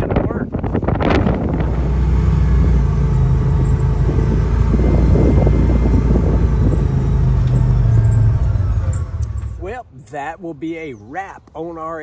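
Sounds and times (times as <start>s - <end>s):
vehicle engine droning: 0.8s - 9.8s.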